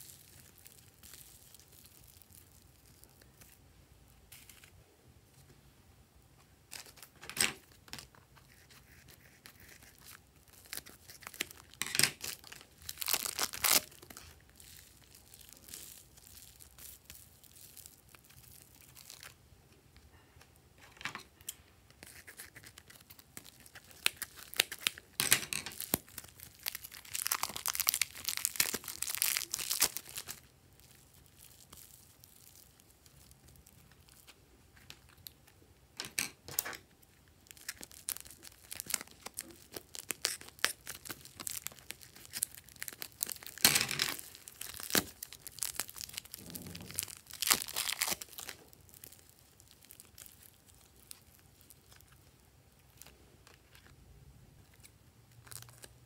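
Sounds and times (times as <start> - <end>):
plastic packets crinkling: 0.0 - 3.6, 6.7 - 19.4, 21.4 - 35.5, 36.2 - 54.0
foam clay squeezing out: 37.5 - 52.2.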